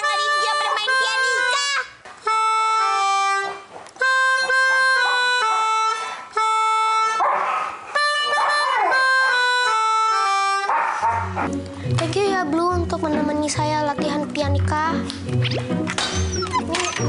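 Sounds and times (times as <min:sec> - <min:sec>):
melodica playing a simple tune: 0:00.0 - 0:07.3, 0:07.9 - 0:10.7
dog howling: 0:16.2 - 0:17.0.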